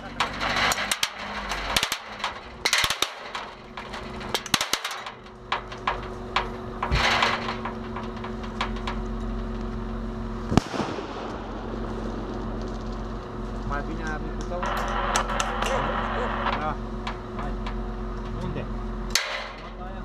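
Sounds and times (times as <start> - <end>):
vehicle engine running: 0.0 - 20.0
sharp bang: 10.5 - 12.8.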